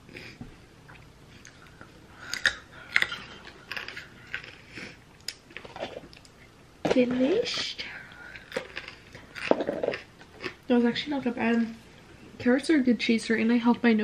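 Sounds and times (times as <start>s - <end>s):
person chewing carrot: 0.1s - 6.4s, 8.3s - 10.6s.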